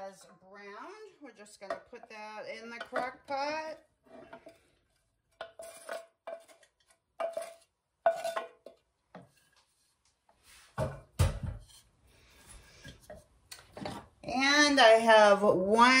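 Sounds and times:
utensil scraping metal pan: 0.0s - 9.9s.

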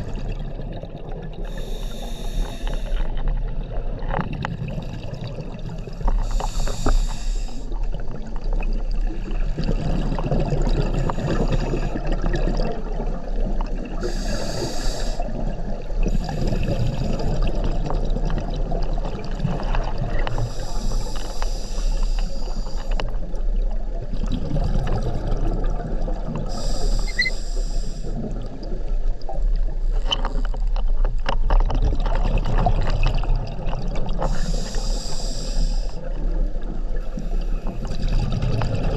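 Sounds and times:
gurgle of exhaled bubbles: 0.0s - 6.8s, 7.8s - 21.0s, 22.9s - 30.8s, 31.4s - 35.0s, 35.8s - 38.9s
regulator hissing inhalation: 1.5s - 3.0s, 6.2s - 7.7s, 14.0s - 15.3s, 20.4s - 22.9s, 26.5s - 28.1s, 34.2s - 36.0s.

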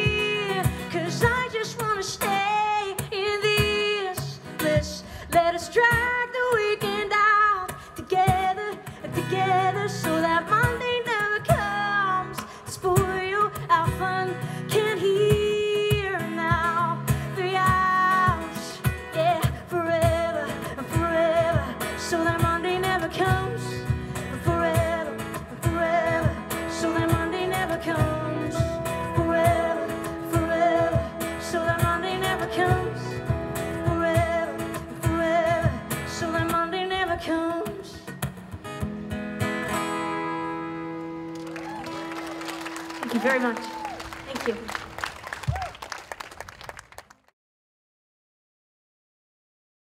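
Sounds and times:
woman singing: 0.0s - 38.2s
strummed acoustic guitar: 0.0s - 41.4s.

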